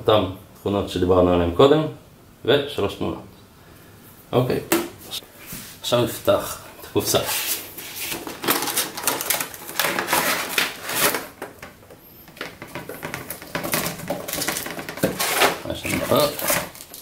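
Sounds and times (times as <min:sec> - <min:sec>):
packaging rustling and clicking: 0:08.1 - 0:17.0.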